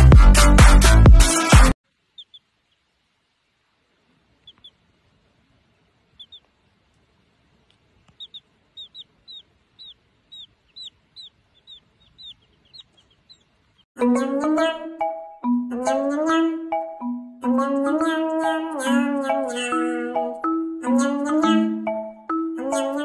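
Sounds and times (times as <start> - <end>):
music: 0.0 - 1.8, 14.0 - 23.0
baby chick peeping: 1.9 - 3.1, 4.0 - 14.8.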